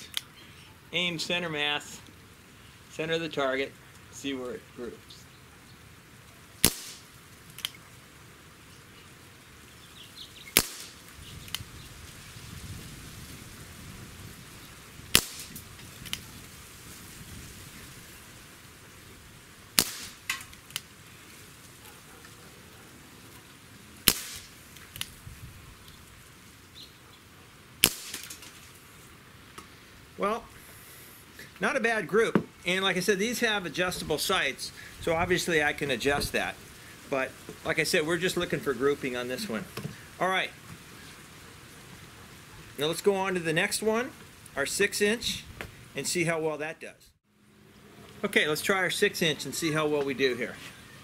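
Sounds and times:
air pistol shots: 6.6 - 7.1, 10.5 - 11.0, 15.1 - 15.6, 19.8 - 20.5, 24.0 - 25.1, 27.8 - 28.5.

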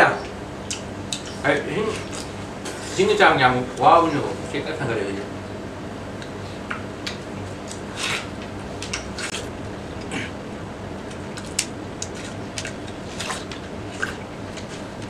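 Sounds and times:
steady low hum: 0.0 - 15.0
people chewing watermelon: 0.6 - 2.4, 11.0 - 15.0.

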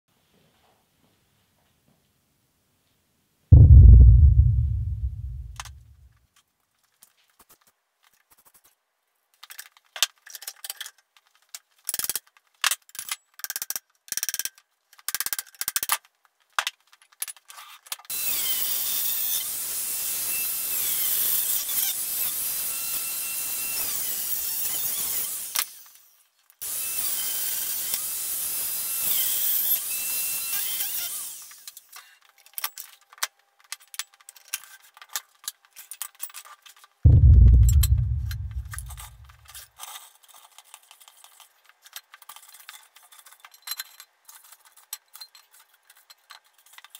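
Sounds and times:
heavy thud: 3.6 - 5.8, 37.1 - 39.3.

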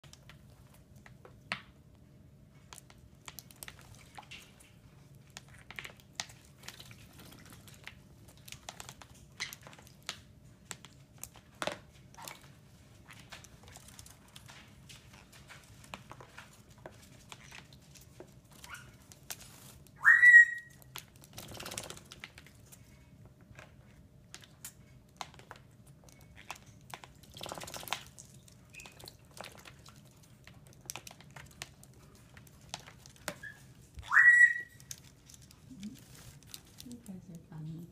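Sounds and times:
small splashes and clicks: 0.0 - 1.7, 2.6 - 20.0, 20.7 - 37.4
birds splashing in water: 17.1 - 22.5, 26.4 - 34.8
upward-sliding whistled bird call: 20.0 - 20.8, 33.4 - 34.8.

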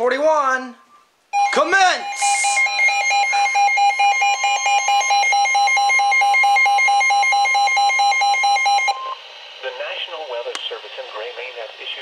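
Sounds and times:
steady warning alarm tone: 1.3 - 9.2
rapid shrill beeping: 1.4 - 9.0.

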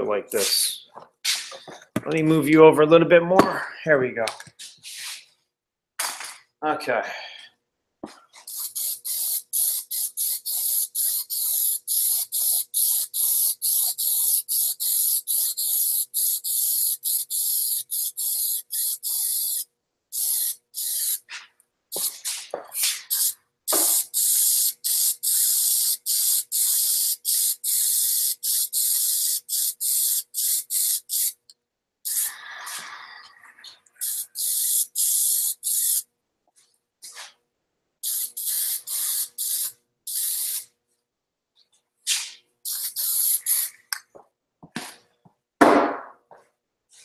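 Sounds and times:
aerosol can spraying: 8.4 - 21.3, 21.9 - 31.4, 32.1 - 32.3, 34.0 - 36.0, 38.0 - 40.6, 42.7 - 43.9.

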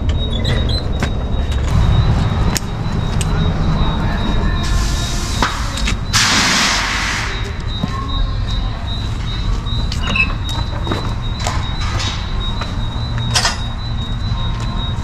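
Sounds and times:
low rumble: 0.0 - 6.2.

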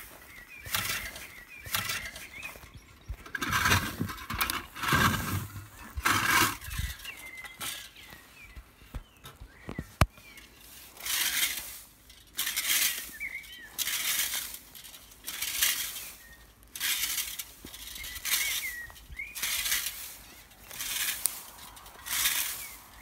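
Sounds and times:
bird chirping: 0.0 - 11.0, 12.8 - 14.2, 17.6 - 23.0
rake scraping through dry grass: 0.0 - 23.0.

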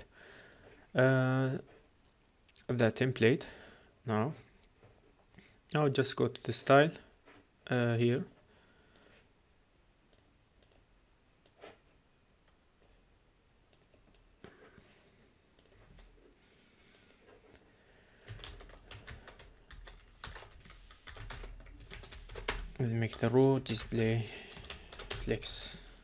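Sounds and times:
computer keyboard typing: 15.6 - 16.2, 18.2 - 25.6.

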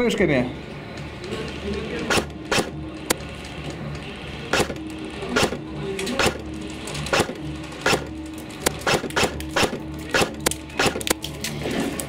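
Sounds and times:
airsoft gun shots: 2.1 - 2.7, 4.5 - 4.8, 6.2 - 6.4, 7.1 - 8.1, 8.8 - 11.1.

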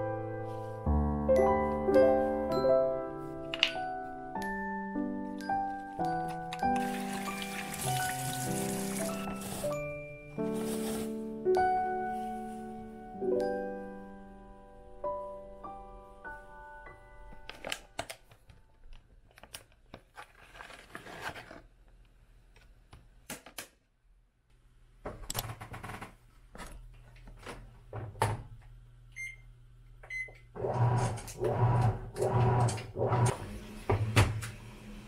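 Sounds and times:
washing machine beeps: 29.2 - 29.4, 30.1 - 30.8
washing machine motor pulsing: 30.6 - 35.0.

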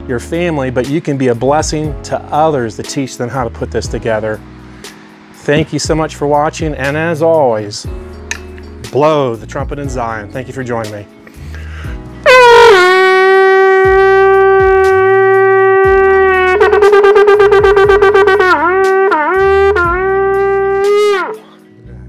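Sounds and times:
shofar blown: 12.2 - 21.6.

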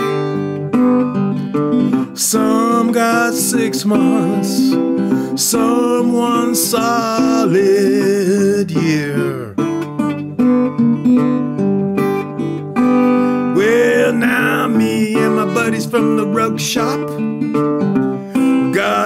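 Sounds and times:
fingerpicked resonator guitar: 0.0 - 19.0
man singing: 2.0 - 9.7, 13.2 - 17.2, 18.4 - 19.0.

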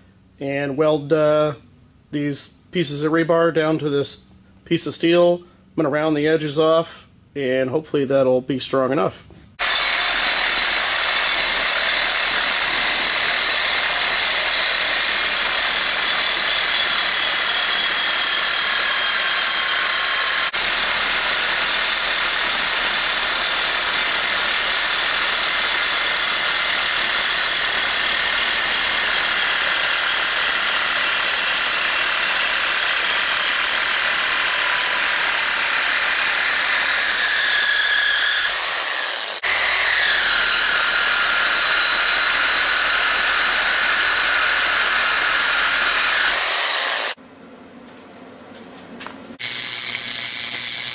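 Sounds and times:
angle grinder grinding steel: 9.6 - 47.2, 49.4 - 50.9.

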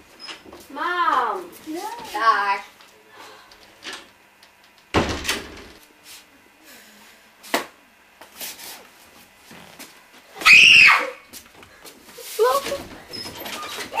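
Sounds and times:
door banging shut: 4.9 - 5.8
loud high-pitched cry: 10.4 - 11.3.

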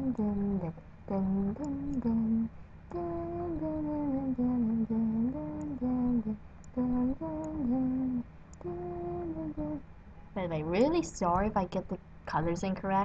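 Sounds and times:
woman humming: 0.0 - 9.8.

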